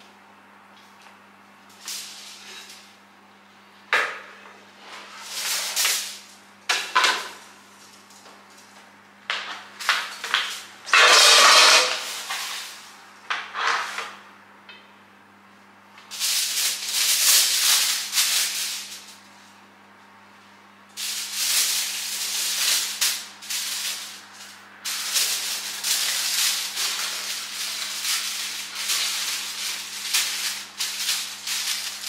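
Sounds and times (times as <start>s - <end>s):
scraping and rustling: 9.5s - 12.8s, 21.0s - 32.0s.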